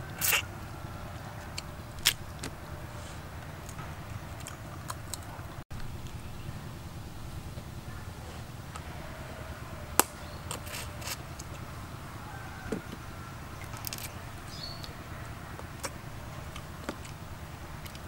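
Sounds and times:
chewing and sucking crab meat: 0.0s - 0.8s, 1.4s - 5.6s, 15.6s - 18.0s.

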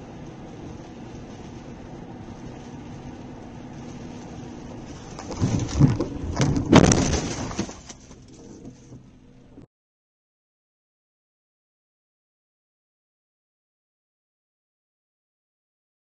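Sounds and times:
road noise inside car: 0.0s - 9.7s
loud car collision impact: 5.3s - 8.0s.

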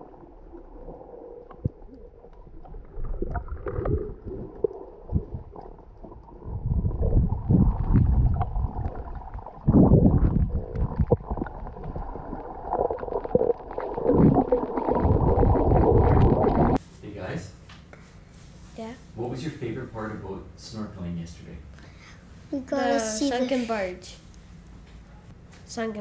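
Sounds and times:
underwater rumbling and gurgling: 0.0s - 16.8s.

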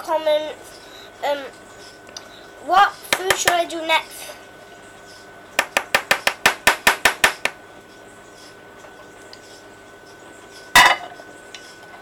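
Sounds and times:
spoon knocking a metal bowl: 3.2s - 3.6s, 5.6s - 7.6s.

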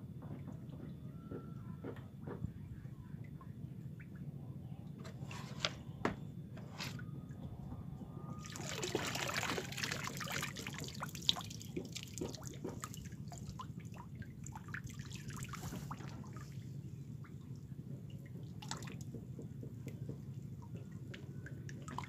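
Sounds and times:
water rushing off a net: 8.4s - 11.5s
water trickling and dripping: 8.4s - 22.0s.

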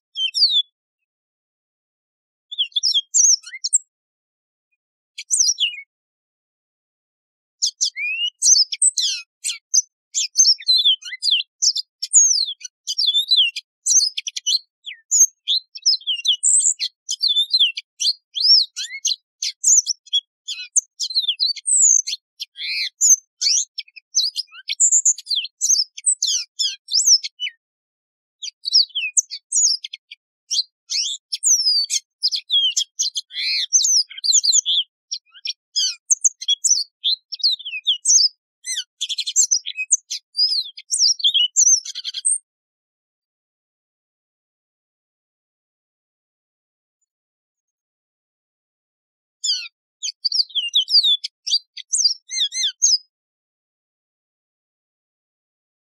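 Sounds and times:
canary singing: 0.1s - 0.7s, 2.5s - 3.9s, 5.2s - 5.9s, 7.6s - 27.6s, 28.4s - 42.5s, 49.4s - 53.1s.

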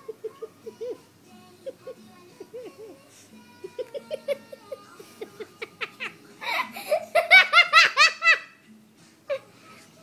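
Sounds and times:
person laughing: 3.6s - 8.5s.

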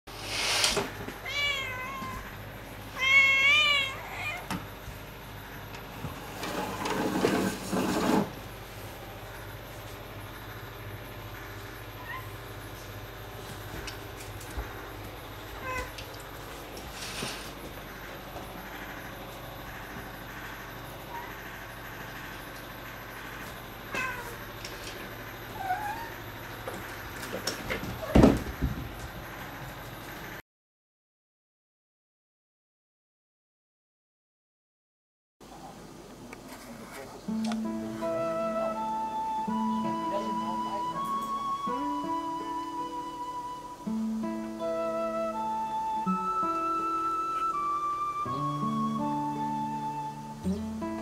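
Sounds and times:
steady low hum: 0.8s - 30.4s
cat meowing: 1.2s - 2.3s, 2.9s - 4.6s, 12.0s - 12.4s, 15.6s - 16.0s, 23.9s - 24.4s, 25.6s - 26.2s.

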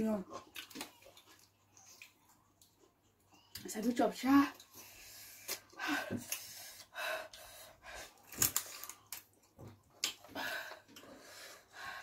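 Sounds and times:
person chewing and smacking: 0.3s - 3.7s, 8.2s - 11.2s
person breathing: 10.3s - 12.0s.

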